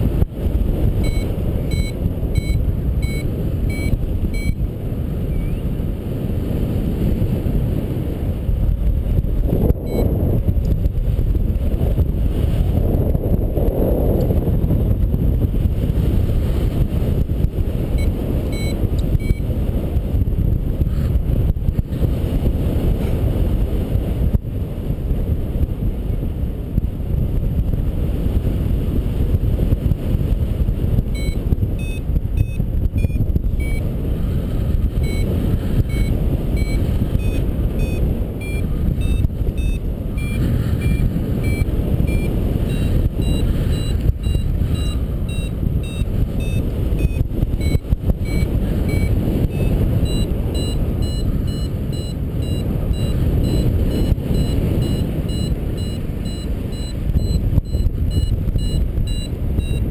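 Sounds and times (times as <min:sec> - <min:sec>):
wind buffeting microphone: 0:00.0 - 0:59.9
variometer beeping: 0:00.8 - 0:04.7, 0:09.7 - 0:10.8, 0:17.8 - 0:19.6, 0:31.0 - 0:59.9.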